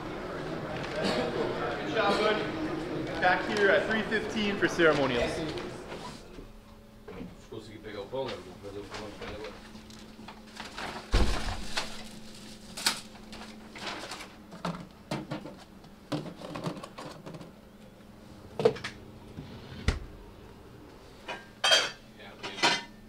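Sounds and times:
paper bags rustling: 0:03.0 - 0:06.0, 0:08.3 - 0:14.9.

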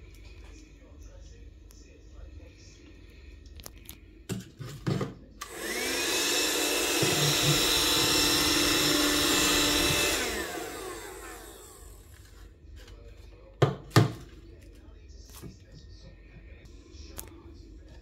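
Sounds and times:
vacuum cleaner motor whining: 0:05.4 - 0:12.4.

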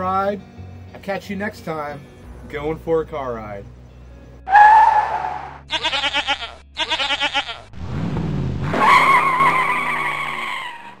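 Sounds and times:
tire squeal: 0:04.5 - 0:05.6, 0:08.7 - 0:11.0
cartoon goat bleating: 0:04.5 - 0:07.7.

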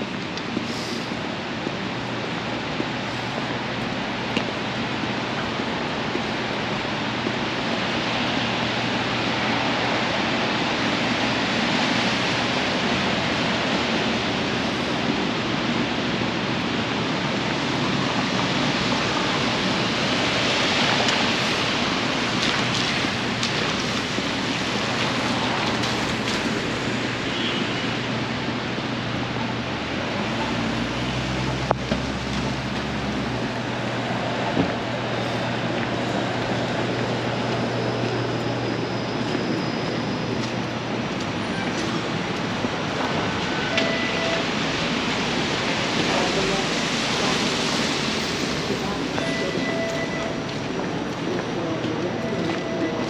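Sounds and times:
traffic on wet streets: 0:00.0 - 0:53.0
rain hiss: 0:00.5 - 0:01.6, 0:18.4 - 0:27.2
vehicle engine hum: 0:28.2 - 0:53.0.

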